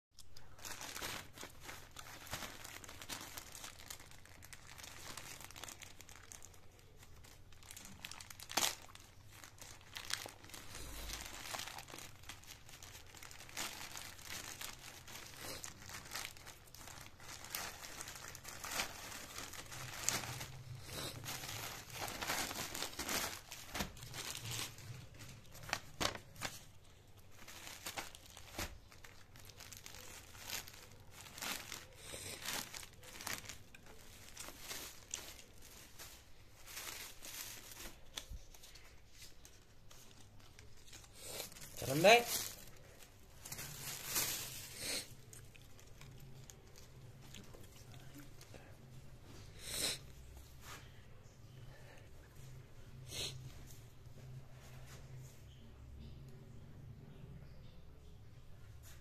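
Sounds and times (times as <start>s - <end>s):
plastic bag crinkling: 0.2s - 49.0s
plastic mailer bag being torn open: 0.4s - 26.6s, 27.4s - 36.0s.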